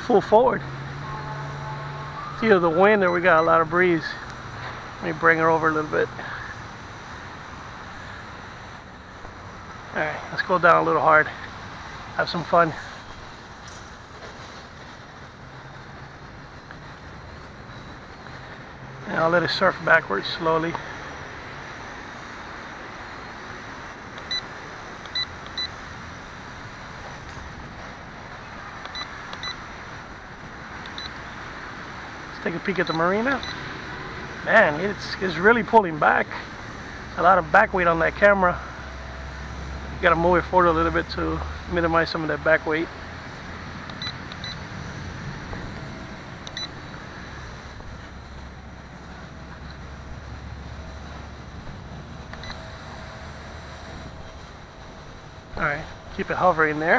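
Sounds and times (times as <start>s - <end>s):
quadcopter propellers whirring: 0.0s - 56.9s
low hum: 0.6s - 3.2s
short high beeps: 1.0s - 3.6s, 32.9s - 33.6s, 44.0s - 44.6s, 45.8s - 46.8s, 52.4s - 54.0s.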